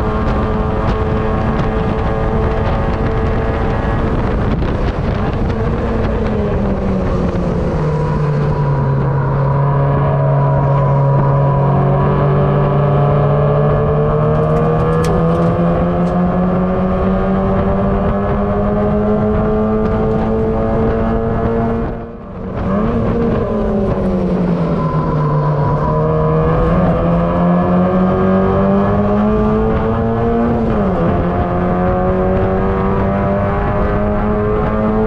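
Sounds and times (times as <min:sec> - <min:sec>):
race car engine revving: 0:00.0 - 0:35.0.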